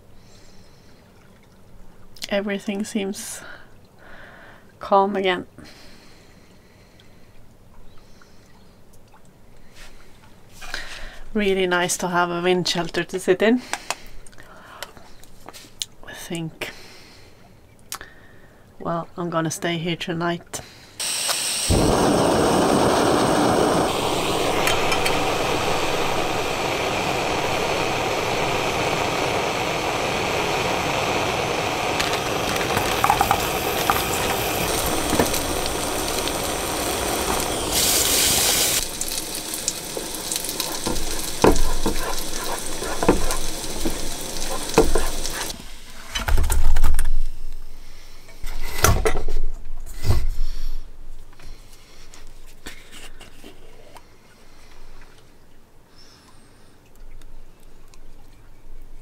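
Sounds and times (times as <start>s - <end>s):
meatballs sizzling in a pan: 21.0s - 45.6s
gas stove burner hissing: 21.0s - 46.0s.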